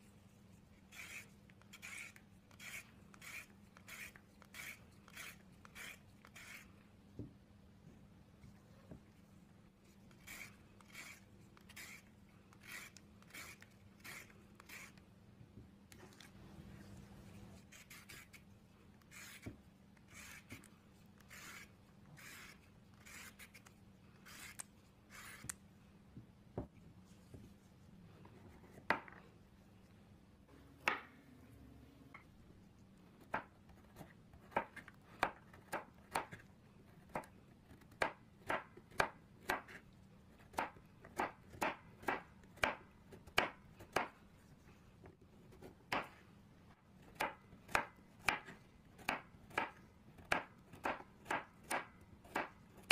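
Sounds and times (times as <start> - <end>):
peeler scraping carrot skin: 0.9 - 6.7, 10.1 - 15.0.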